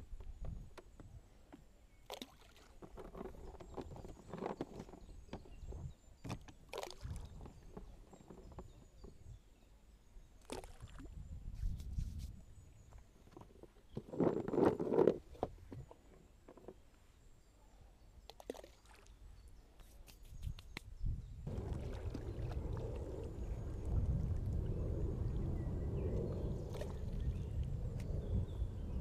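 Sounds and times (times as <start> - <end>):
water splashing against a dinghy: 2.0 - 9.0, 21.5 - 27.8
low rumble: 21.4 - 29.0
oars splashing: 21.5 - 24.2.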